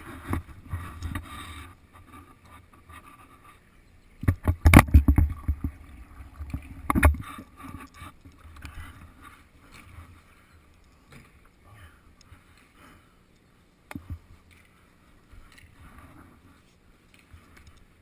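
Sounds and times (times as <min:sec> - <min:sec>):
sharp knocks and rattles on helmet: 0:04.2 - 0:05.7.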